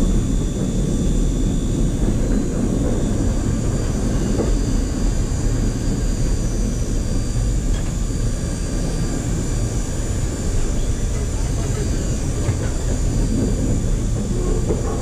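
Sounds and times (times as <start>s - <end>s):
faint high whine: 0.0s - 15.0s
streetcar wheels and motors rumbling: 0.0s - 15.0s.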